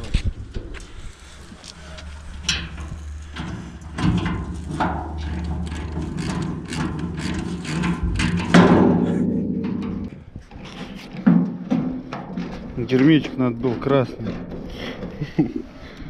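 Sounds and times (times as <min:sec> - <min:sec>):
steady low hum: 0:00.0 - 0:10.6.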